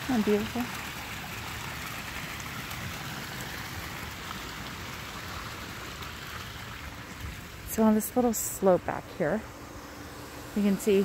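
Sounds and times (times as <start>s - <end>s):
water splashing into pool: 0.0s - 7.8s.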